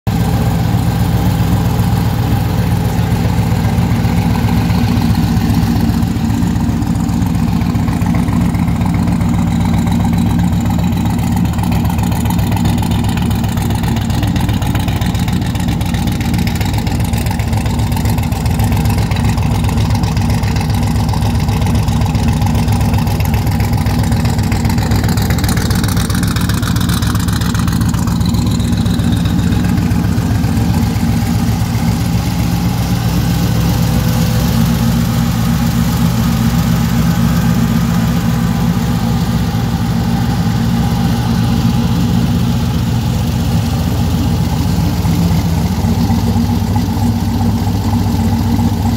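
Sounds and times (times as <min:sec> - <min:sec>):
car engine idling: 0:00.0 - 0:48.9.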